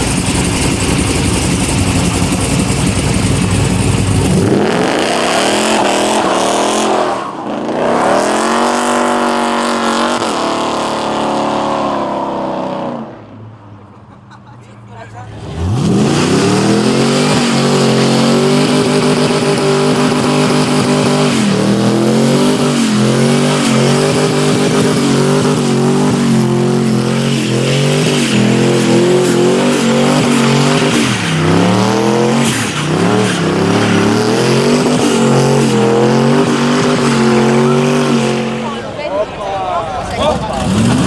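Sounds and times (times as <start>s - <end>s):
car engine revving high: 0.0s - 13.4s, 15.3s - 39.1s, 40.1s - 41.0s
spinning tyres hissing and squealing: 15.4s - 38.8s.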